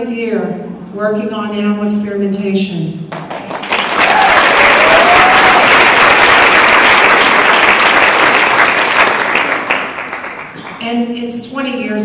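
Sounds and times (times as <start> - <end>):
audience applauding: 3.1 - 10.8.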